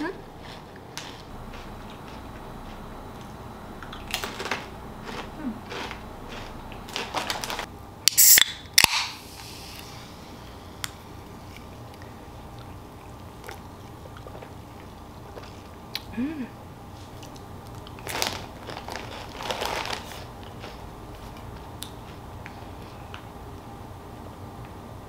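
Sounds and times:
carbonation hissing: 8.1s - 11.6s.

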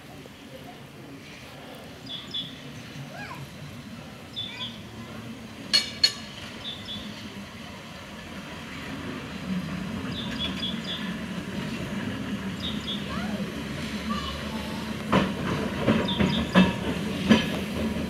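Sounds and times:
tram rumbling on rails: 0.0s - 18.0s
birds chirping: 6.6s - 7.3s, 10.0s - 13.2s, 15.9s - 16.8s.

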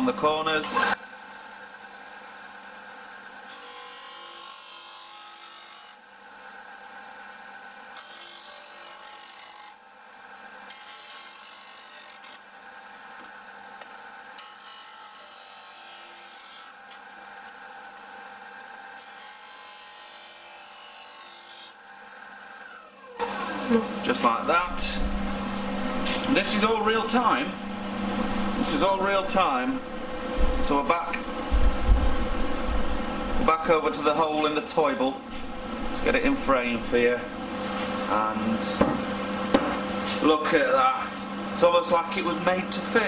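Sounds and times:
sander grinding wood: 10.7s - 38.6s
sander motor hum: 16.1s - 43.0s.

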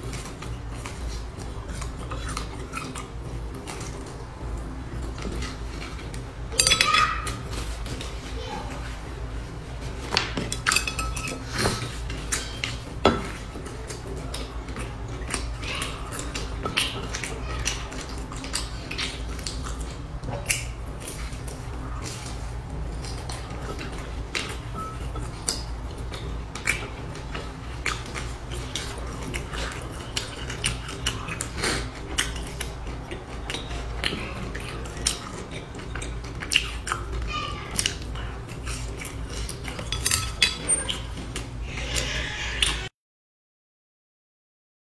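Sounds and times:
chewing crisp food: 0.0s - 42.9s
chopsticks clinking on steel bowl: 6.6s - 7.4s, 10.5s - 13.4s, 39.4s - 40.8s.

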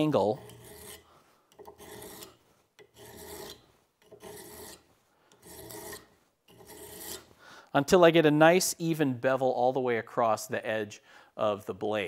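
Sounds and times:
hand file strokes on steel: 0.0s - 7.4s.

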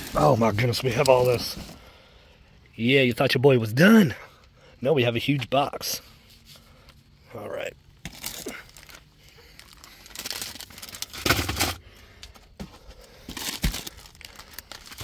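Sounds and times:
plastic wrapper crinkling: 8.0s - 11.8s, 13.3s - 15.0s.

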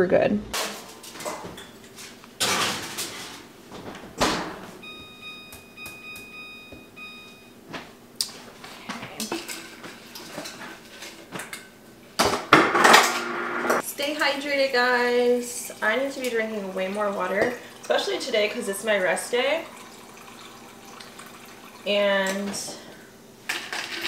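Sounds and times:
clatter and rustling of objects: 0.6s - 4.4s, 8.3s - 11.6s, 23.5s - 24.0s
electronic appliance beep: 4.8s - 7.6s.

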